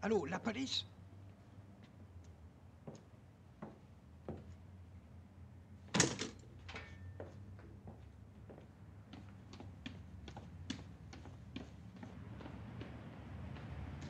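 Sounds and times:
footsteps on stairs: 7.2s - 14.0s.

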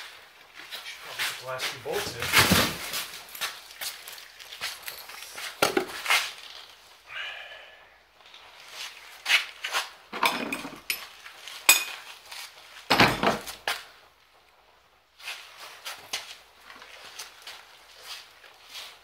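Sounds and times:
metal tools clinking: 2.3s - 5.5s, 10.2s - 12.1s.

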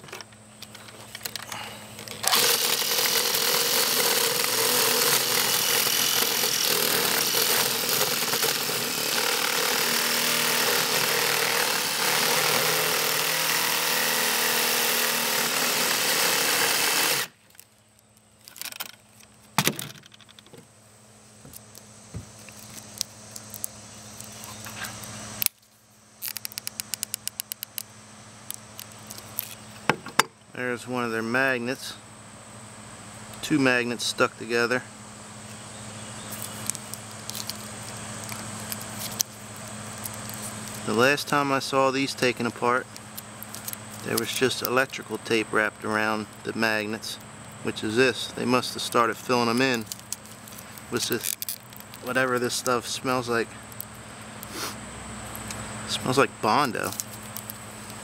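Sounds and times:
electric jigsaw cutting plastic: 2.2s - 17.4s.

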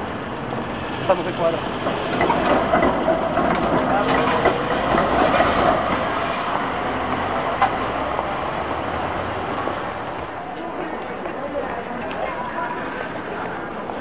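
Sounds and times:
tram wheels rumbling on rails: 0.0s - 14.0s.

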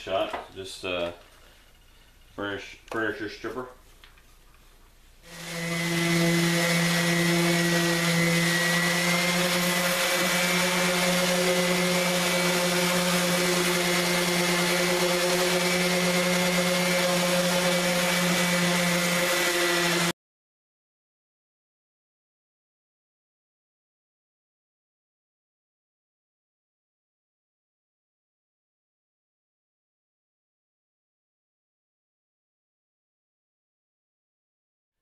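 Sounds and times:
palm sander on wood: 5.2s - 20.1s.

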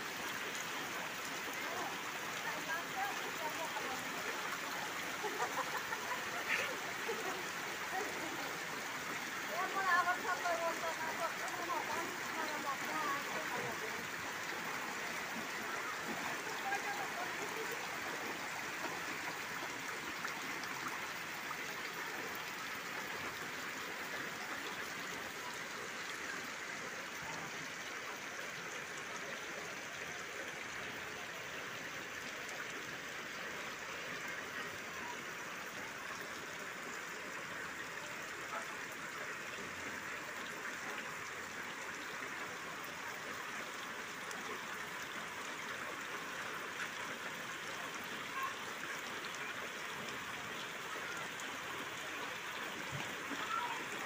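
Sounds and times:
water running across ground: 0.0s - 54.0s
heavy rain on water: 53.2s - 54.0s.

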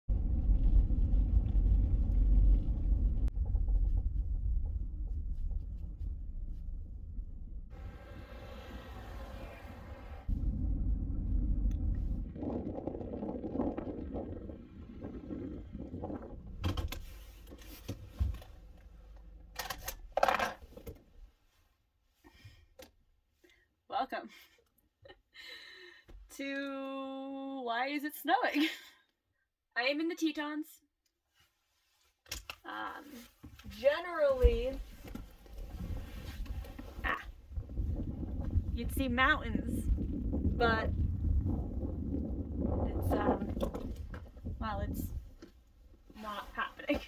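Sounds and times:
road and tyre rumble: 0.1s - 20.4s, 33.8s - 47.0s
clatter: 0.1s - 21.0s.

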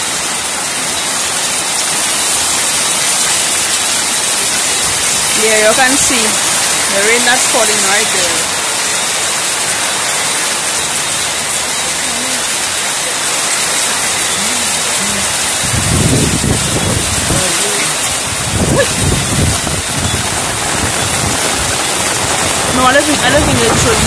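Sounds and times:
heavy rain pouring: 0.0s - 24.0s.

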